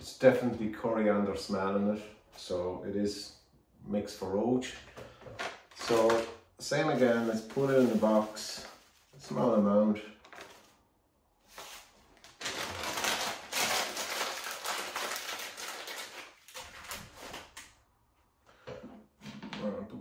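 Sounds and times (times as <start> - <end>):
dry rustling and rubbing: 6.8 - 9.5.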